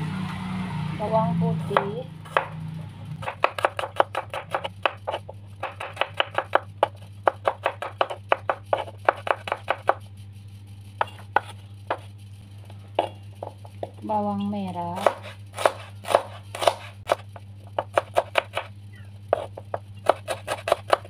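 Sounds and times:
knife chopping on wooden board: 0:01.7 - 0:02.6, 0:03.2 - 0:10.0, 0:11.0 - 0:12.1, 0:15.0 - 0:18.7, 0:19.3 - 0:21.0.

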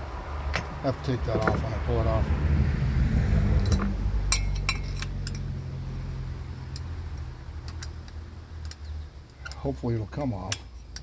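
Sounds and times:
metallic tool clicks and clinks: 0:03.6 - 0:05.5, 0:06.7 - 0:09.7.

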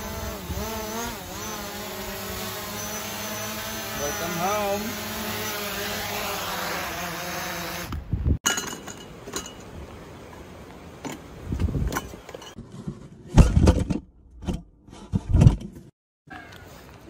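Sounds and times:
drone propellers whirring: 0:00.0 - 0:08.0
camping gear clinking and rattling: 0:08.4 - 0:11.3, 0:11.9 - 0:12.8.

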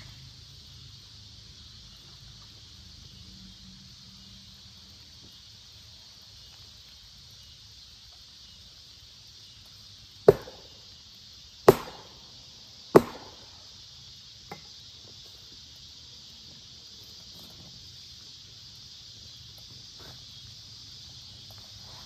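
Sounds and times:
insects chirring: 0:00.0 - 0:22.0
sharp blows on log: 0:10.3 - 0:10.7, 0:11.6 - 0:12.3, 0:12.9 - 0:13.5.

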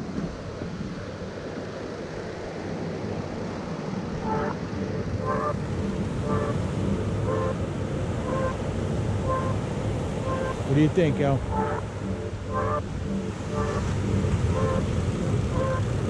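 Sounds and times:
wind: 0:00.0 - 0:16.0
short pitched beeps: 0:04.2 - 0:08.6, 0:09.2 - 0:09.6, 0:10.2 - 0:16.0.

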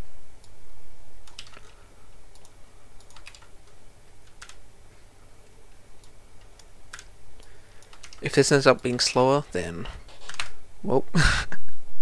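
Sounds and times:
low steady hum: 0:00.0 - 0:12.0
keyboard typing: 0:01.2 - 0:04.6, 0:05.4 - 0:07.2, 0:07.8 - 0:10.6.

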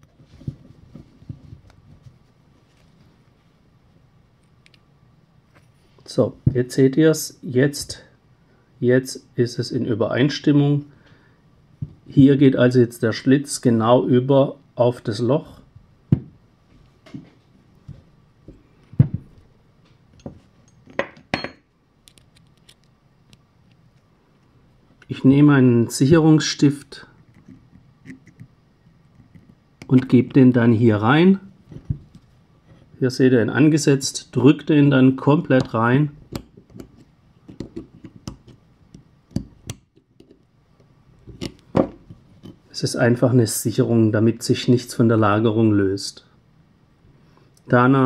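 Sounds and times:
metal parts knocking and clinking: 0:20.2 - 0:21.6.

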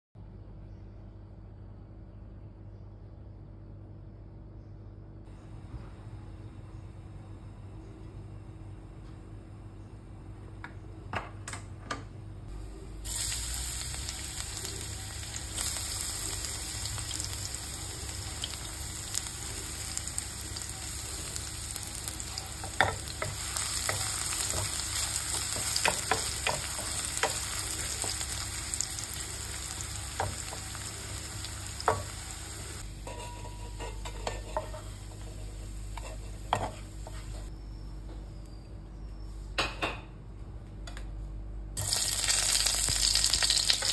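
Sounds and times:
garlic sizzling in hot oil: 0:13.0 - 0:37.5, 0:41.8 - 0:43.9.

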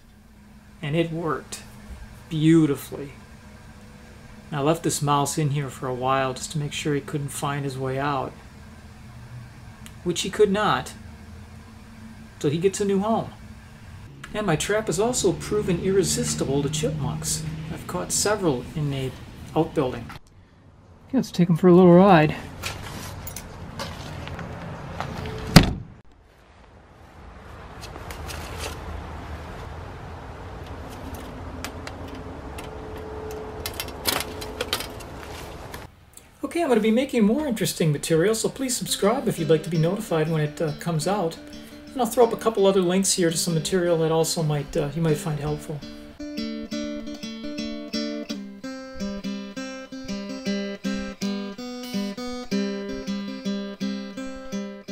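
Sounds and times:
acoustic guitar plucking: 0:10.4 - 0:20.1, 0:38.5 - 0:54.9.

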